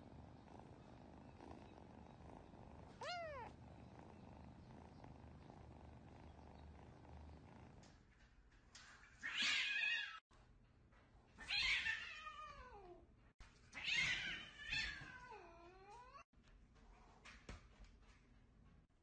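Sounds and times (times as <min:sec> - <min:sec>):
cat yowling: 0:03.0 - 0:03.5.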